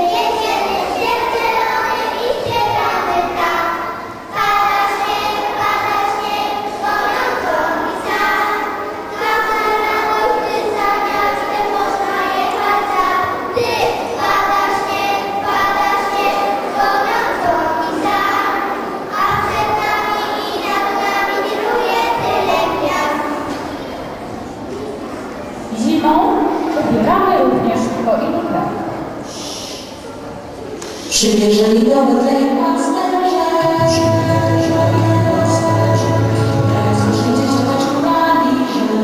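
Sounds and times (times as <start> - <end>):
children singing: 0.0 - 24.1, 32.2 - 39.0.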